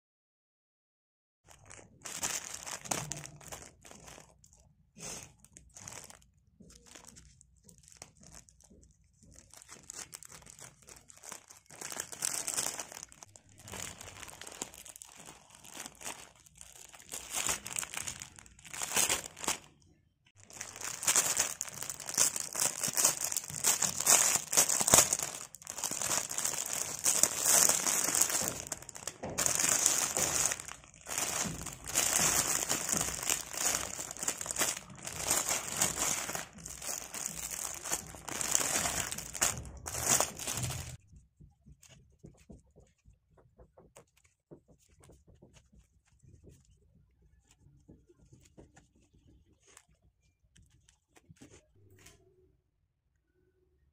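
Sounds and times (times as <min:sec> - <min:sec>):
plastic packaging crinkling: 0:01.5 - 0:19.8, 0:20.4 - 0:41.0.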